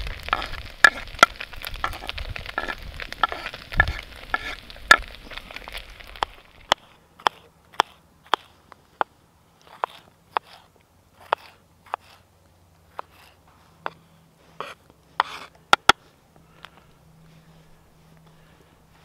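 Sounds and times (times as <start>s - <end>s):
food sizzling: 0.0s - 6.7s.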